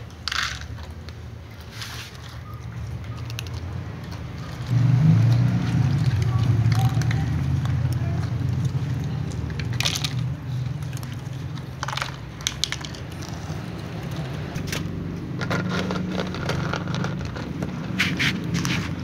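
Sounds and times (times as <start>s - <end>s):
pellets knocking in plastic dishes: 0.0s - 0.8s, 9.3s - 14.2s
cats crunching dry kibble: 0.0s - 19.0s.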